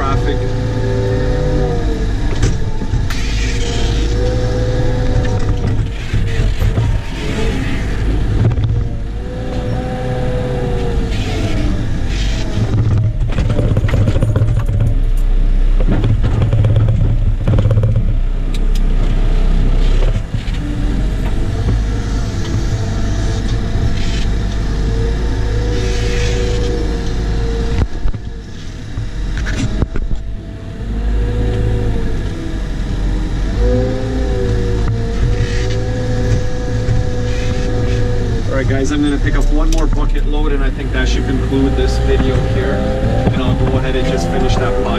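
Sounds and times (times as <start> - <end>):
wheel loader diesel engine: 0.0 - 44.9
knocks and rattles: 2.1 - 9.8, 10.7 - 25.0, 34.4 - 44.9.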